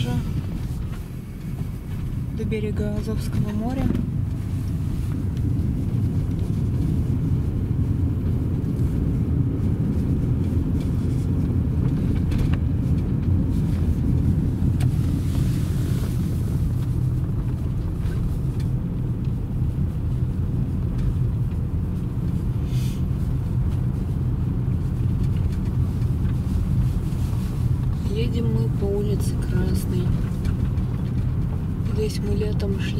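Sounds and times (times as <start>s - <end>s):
car engine and tyre rumble: 0.0s - 32.9s
brief hiss: 22.7s - 23.0s.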